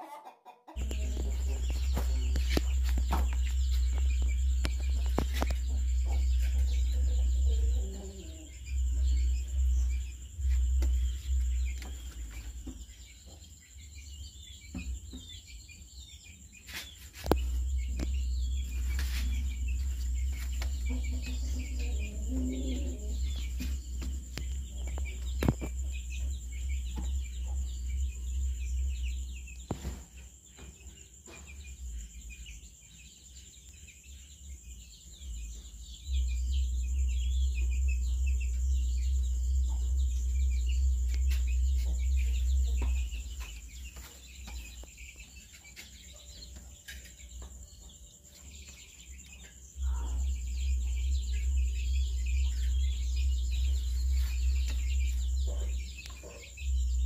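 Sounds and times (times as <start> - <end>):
chicken calls: 0.0 - 13.4, 16.6 - 27.6
small birds chirping: 0.0 - 57.0
low rumble: 0.8 - 12.8.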